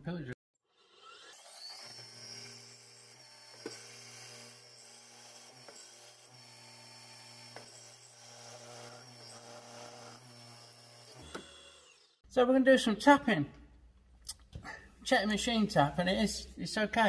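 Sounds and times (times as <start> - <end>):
drill boring into aluminium: 0.7 - 12.2
milling machine spindle motor: 0.8 - 12.2.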